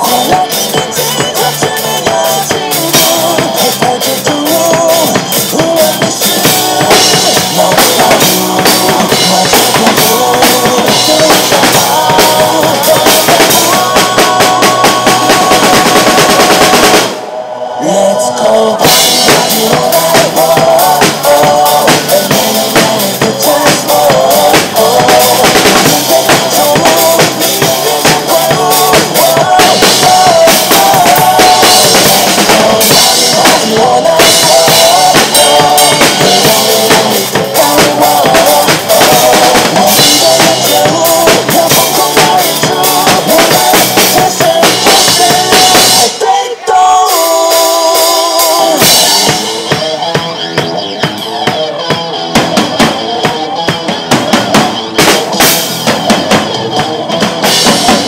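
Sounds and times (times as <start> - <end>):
drum kit played hard: 0.0 - 58.0
pop-rock backing track: 0.0 - 58.0.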